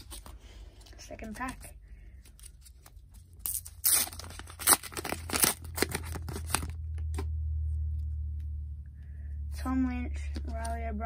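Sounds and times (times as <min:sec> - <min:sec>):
wrapper being torn open: 0:03.3 - 0:07.2.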